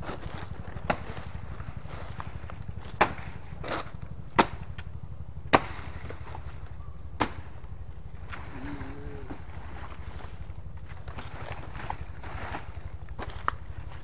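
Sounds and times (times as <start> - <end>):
low rumble: 0.0 - 14.0
blade chopping plant stalk: 0.8 - 1.4, 2.2 - 4.9, 5.5 - 6.5, 7.2 - 7.6.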